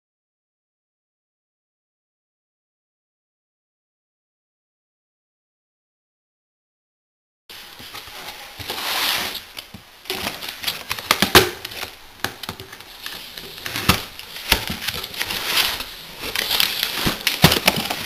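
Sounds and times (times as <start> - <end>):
cardboard flaps scraping: 7.5 - 18.0.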